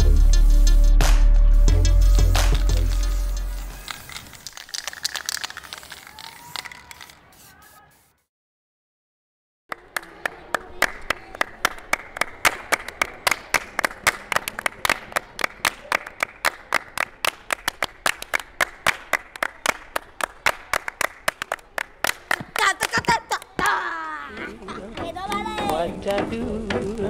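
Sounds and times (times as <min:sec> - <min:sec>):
children's hands clapping: 0:02.4 - 0:07.2, 0:09.7 - 0:26.3
voices: 0:21.5 - 0:27.0.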